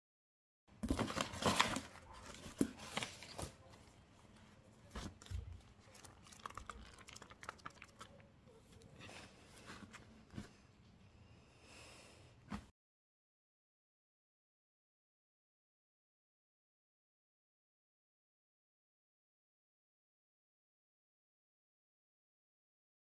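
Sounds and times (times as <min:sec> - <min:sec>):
packaging crinkling and tearing: 0:00.8 - 0:03.6.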